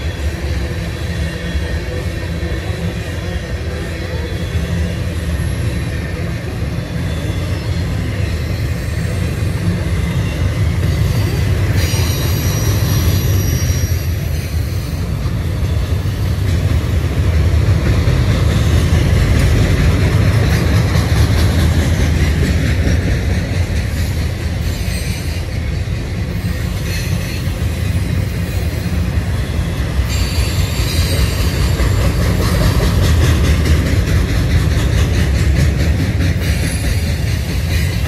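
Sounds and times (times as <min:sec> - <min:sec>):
train wheels rumbling on rails: 0:00.0 - 0:38.0
high-pitched wheel squeal: 0:06.8 - 0:16.2, 0:26.4 - 0:32.2.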